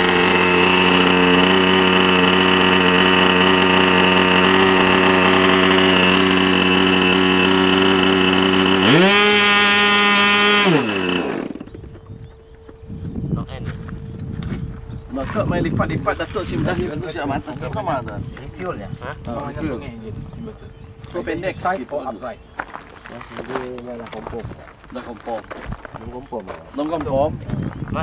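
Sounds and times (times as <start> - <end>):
model airplane engine: 0.0 - 13.1.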